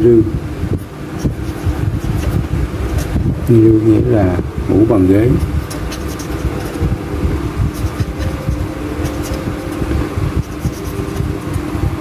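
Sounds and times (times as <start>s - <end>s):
steady mechanical hum: 0.0s - 12.0s
pen scratching on paper: 0.7s - 3.3s, 5.3s - 11.5s.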